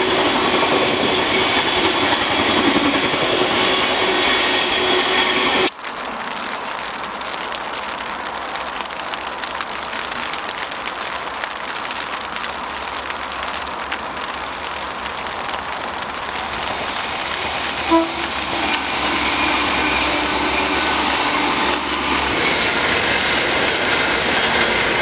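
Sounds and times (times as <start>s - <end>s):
rain on an umbrella: 5.6s - 25.0s.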